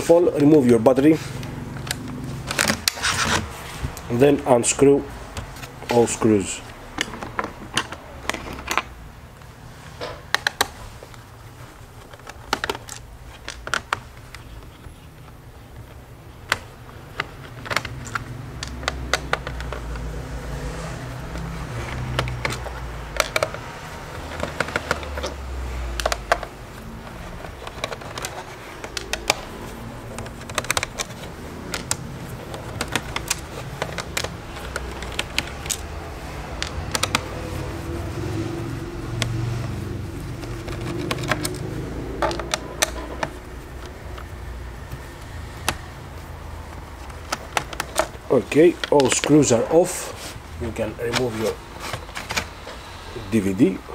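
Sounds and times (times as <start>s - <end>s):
screwdriver clicking on plastic case: 21.3s - 37.4s, 40.4s - 45.9s, 47.0s - 49.4s.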